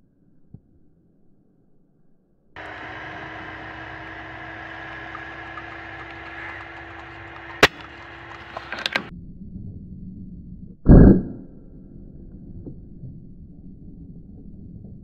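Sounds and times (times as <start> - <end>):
quick clicks: 2.6 - 9.1
low background hum: 2.6 - 9.8
air rifle shot: 7.6 - 8.0.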